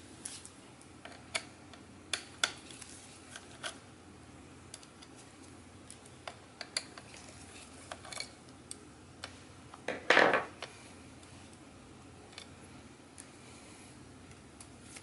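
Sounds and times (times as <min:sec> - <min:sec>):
screwdriver clattering on wooden table: 0:09.9 - 0:10.5.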